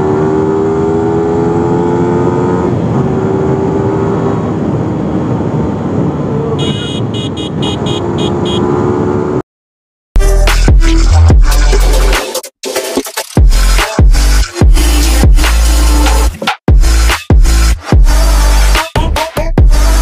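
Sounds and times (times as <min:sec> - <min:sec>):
wind and road noise: 0:00.0 - 0:09.4.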